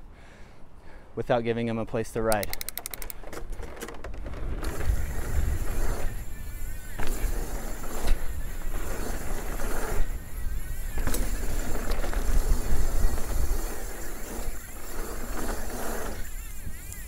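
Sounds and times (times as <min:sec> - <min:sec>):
bike tyres rolling on dirt: 0:03.2 - 0:17.0
wind on microphone: 0:04.2 - 0:17.0.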